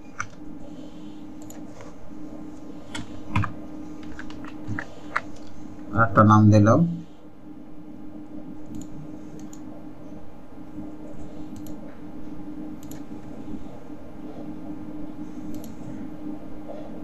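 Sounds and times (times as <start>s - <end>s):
steady low hum: 0.0s - 17.0s
computer mouse clicks: 1.4s - 1.6s, 8.6s - 9.6s, 11.5s - 11.8s, 12.8s - 13.1s, 15.4s - 15.8s.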